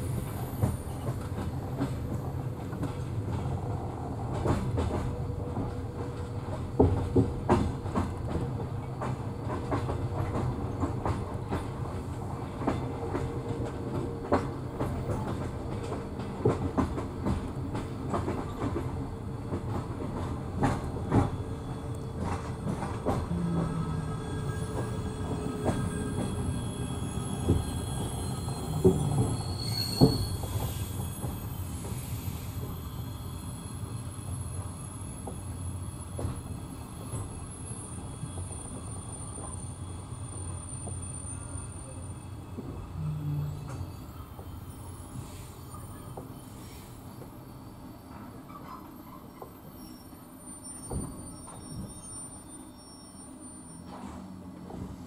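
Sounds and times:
train rumble: 0.0 - 52.1, 53.8 - 55.0
faint wheel squeal: 23.6 - 42.3, 43.0 - 54.4.

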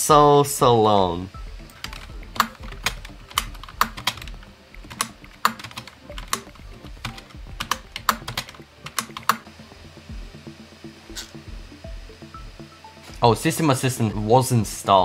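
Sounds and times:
keyboard and mouse clicking: 1.6 - 9.4.

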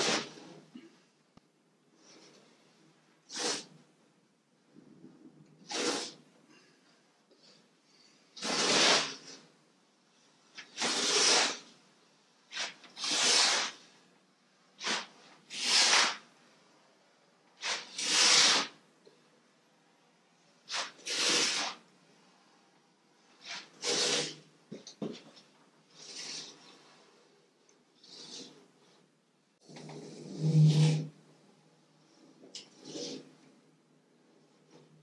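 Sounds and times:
masking tape ripping off roll: 5.6 - 6.2, 8.4 - 9.4, 10.6 - 11.7, 12.5 - 13.9, 14.8 - 16.2, 17.6 - 18.8, 20.7 - 21.8, 23.4 - 24.4.

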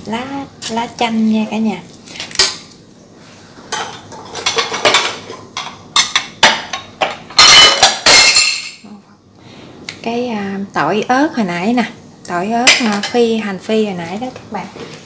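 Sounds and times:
metal spoon clinking on cookware: 3.7 - 8.8.

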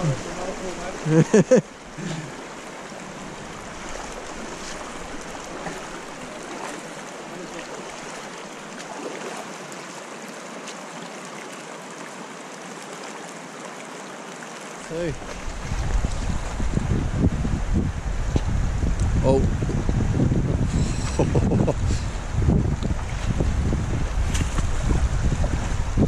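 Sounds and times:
river rushing over stones: 0.0 - 18.8.

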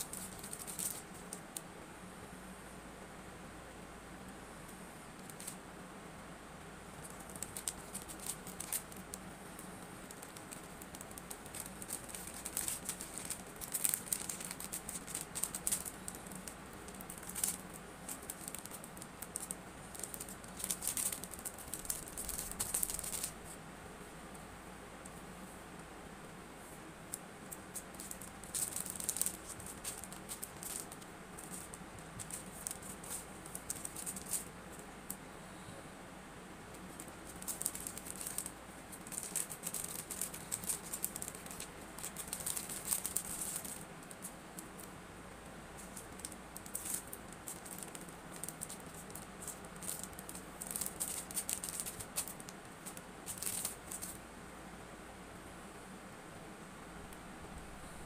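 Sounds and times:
packaging crinkling: 0.0 - 1.4, 7.0 - 23.5, 27.5 - 34.8, 36.8 - 44.9, 45.8 - 54.2.

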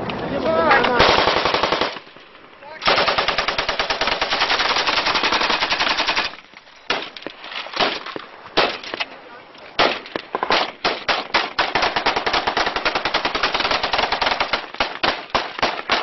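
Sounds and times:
automatic machine-gun fire: 1.0 - 2.0, 2.8 - 6.4, 10.8 - 16.0.

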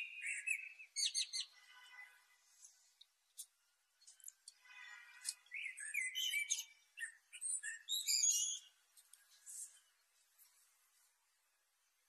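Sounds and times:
blackbird singing: 0.0 - 1.5, 5.5 - 8.7.

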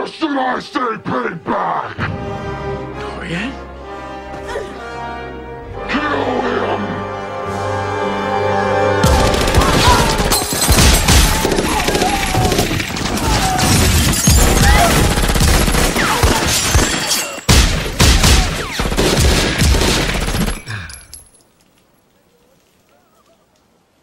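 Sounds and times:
music: 0.0 - 11.1
rapid automatic gunfire: 9.0 - 13.1, 14.3 - 16.9, 17.6 - 20.6
things shattering: 9.5 - 17.5.

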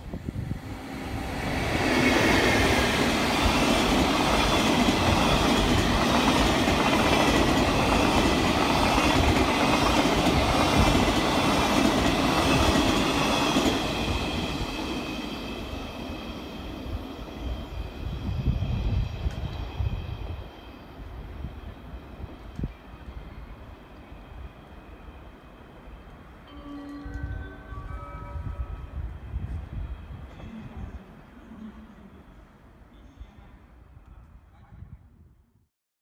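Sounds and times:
train wheels clattering on rails: 2.4 - 15.6
high ringing: 26.4 - 29.1.

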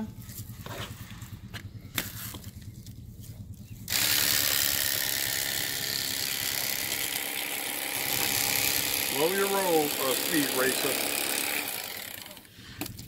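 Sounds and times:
electric knife buzzing: 3.9 - 12.5.

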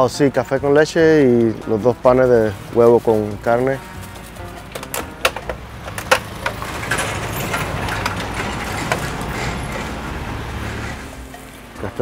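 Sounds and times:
vehicle engine rumbling: 1.3 - 12.0
sharp clicks and knocks: 4.4 - 11.8.

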